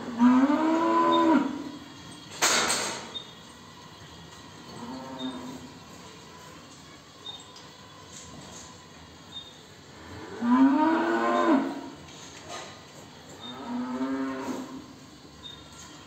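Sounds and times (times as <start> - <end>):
cow mooing: 0.0 - 1.7, 4.7 - 5.8, 10.0 - 12.0, 13.4 - 14.9.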